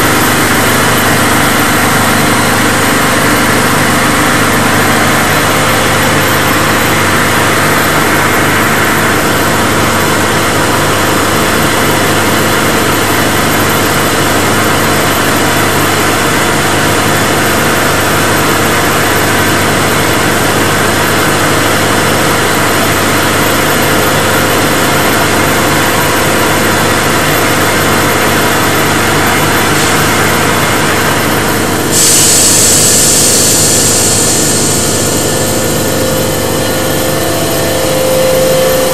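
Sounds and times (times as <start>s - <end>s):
compressor machine hum: 0.0s - 38.9s
loud hiss: 31.9s - 38.9s.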